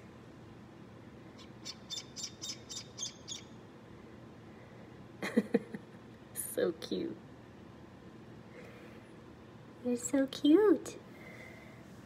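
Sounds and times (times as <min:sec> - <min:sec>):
duckling peeping: 0:01.4 - 0:03.6.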